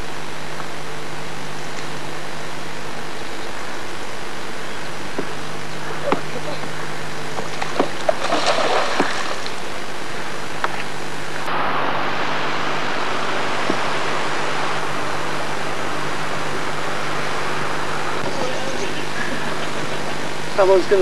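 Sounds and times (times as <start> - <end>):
fish splashing in shallow water: 7.3 - 9.9.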